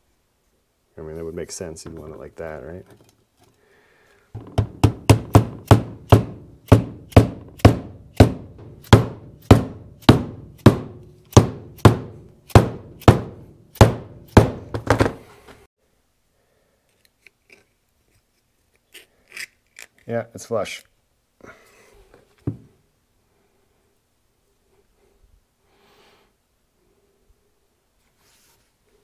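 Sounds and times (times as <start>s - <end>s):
mallet knocking seal into metal: 4.4s - 15.1s.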